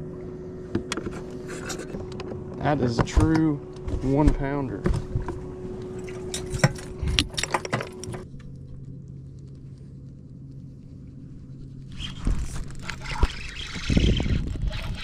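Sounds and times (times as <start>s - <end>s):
low steady hum: 0.0s - 15.0s
clattering clicks and rattles: 6.0s - 8.2s.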